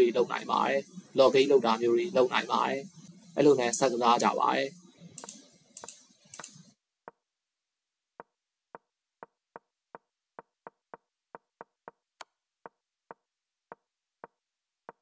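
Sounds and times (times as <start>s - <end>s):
short wooden clicks: 5.2s - 6.6s.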